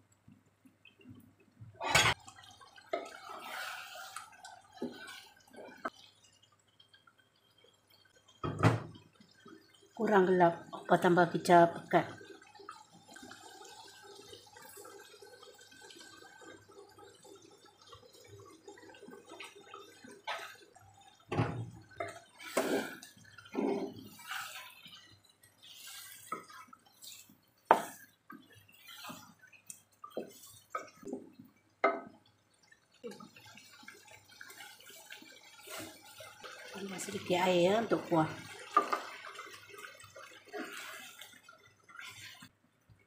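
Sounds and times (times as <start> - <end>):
gravy bubbling in a pan: 0.0 - 43.0
wooden spatula scraping a pan: 2.9 - 5.9, 22.0 - 31.2, 34.4 - 42.5.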